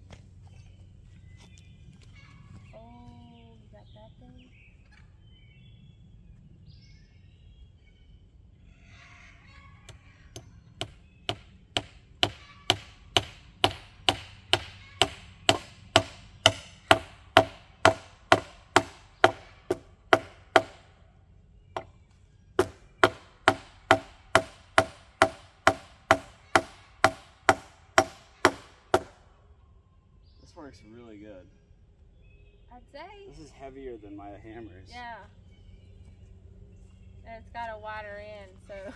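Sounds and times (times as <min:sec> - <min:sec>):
nail being struck into wood: 0:10.4 - 0:20.9, 0:22.6 - 0:29.2.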